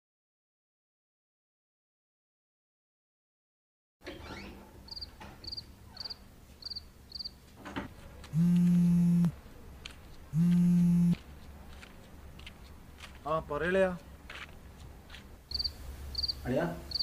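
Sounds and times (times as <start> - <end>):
crickets chirping: 4.9 - 7.4, 15.5 - 17.0
phone vibrating buzz: 8.3 - 9.4, 10.3 - 11.2.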